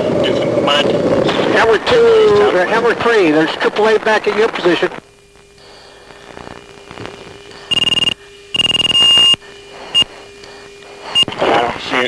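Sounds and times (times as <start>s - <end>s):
electronic hum and hiss: 0.0s - 12.0s
high electronic beeps: 7.7s - 10.1s, 11.1s - 11.4s.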